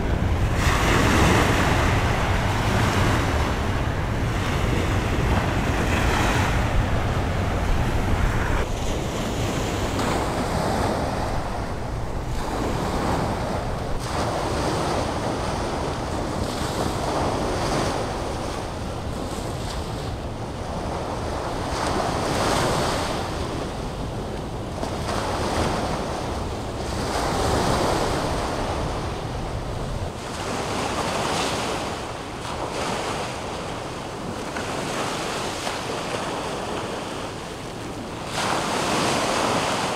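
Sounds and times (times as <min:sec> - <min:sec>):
waves washing against rocks: 0:00.0 - 0:18.2
wind rumbling on microphone: 0:00.0 - 0:39.9.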